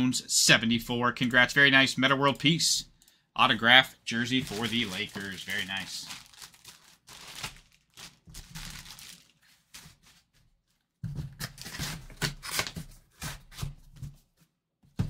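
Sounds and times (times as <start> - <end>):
plastic bag crinkling: 4.1 - 10.2.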